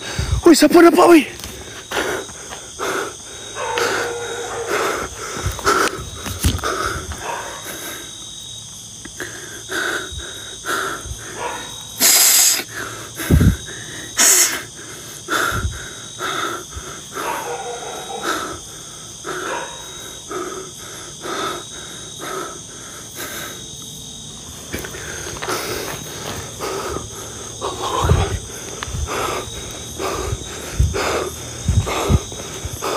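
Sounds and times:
crickets buzzing: 0.0s - 32.9s
loud hissing rushes: 12.0s - 12.7s, 13.3s - 14.7s.

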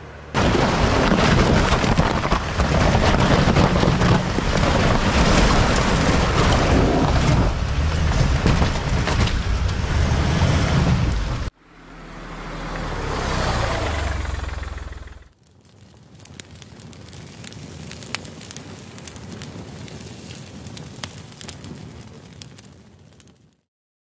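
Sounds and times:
vehicle driving rumble: 0.0s - 15.3s.

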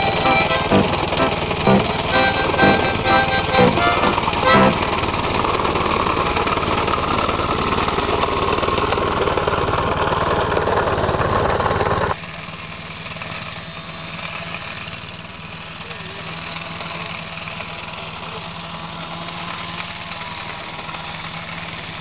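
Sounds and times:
lawn mower engine running: 0.0s - 12.0s.

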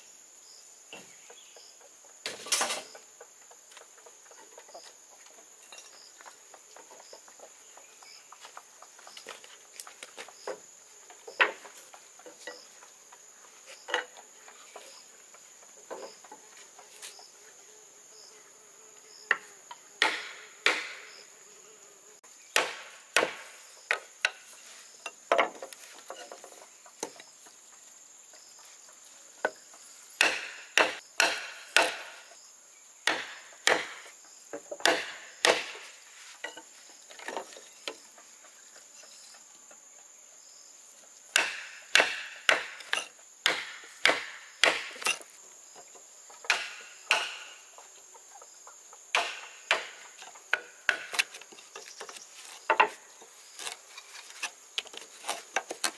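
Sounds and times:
high insect buzz: 0.0s - 55.9s
hand tool striking wood: 19.3s - 21.1s, 22.6s - 24.5s, 25.1s - 27.2s, 30.2s - 32.2s, 33.0s - 37.5s, 41.3s - 45.3s, 46.4s - 47.6s, 49.1s - 55.9s.

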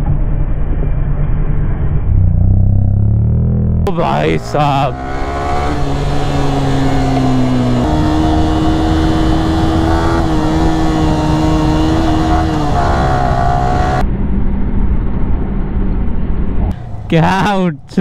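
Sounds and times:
motorcycle engine running: 1.8s - 16.0s.

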